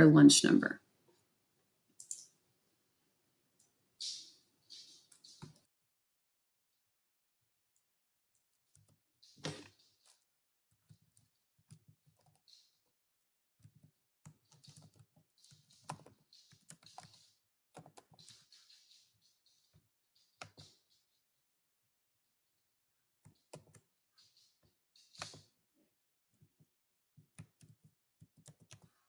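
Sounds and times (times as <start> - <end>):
faint keyboard typing: 2.0 - 2.4, 8.4 - 12.8, 13.6 - 19.2, 19.8 - 20.9, 23.2 - 25.6, 26.4 - 29.0.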